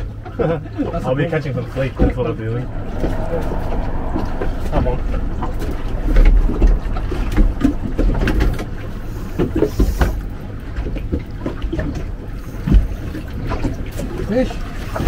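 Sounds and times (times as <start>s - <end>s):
water noise around boat: 0.0s - 15.0s
gusty wind: 0.9s - 10.6s.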